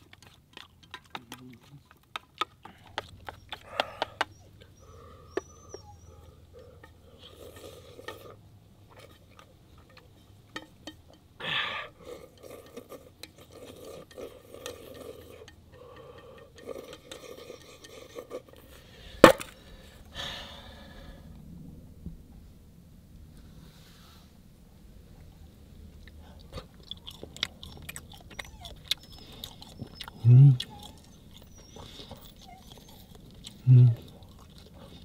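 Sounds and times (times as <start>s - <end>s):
utensils scraping a dish: 12.1s - 18.9s.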